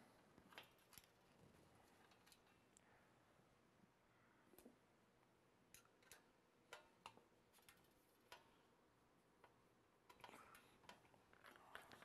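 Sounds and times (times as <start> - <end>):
small clicks of handled wires: 0.4 - 2.8, 5.7 - 8.7, 9.4 - 12.0.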